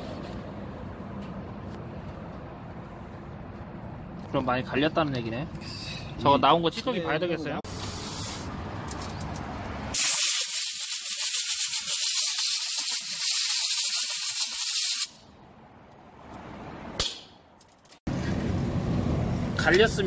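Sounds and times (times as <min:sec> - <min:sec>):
air blow gun hissing: 0:10.0 - 0:15.2.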